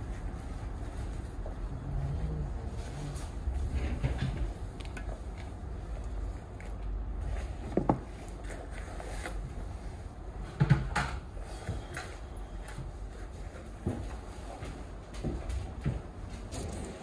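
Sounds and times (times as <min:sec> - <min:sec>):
clothing rustling: 0:00.0 - 0:10.4
steady low rumble: 0:00.0 - 0:10.5.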